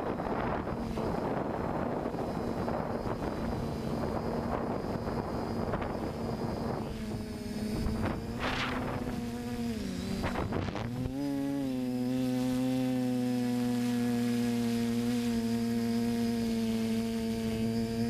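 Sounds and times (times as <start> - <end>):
quadcopter motors buzzing: 0.0 - 18.0
wind noise on microphone: 0.0 - 18.0.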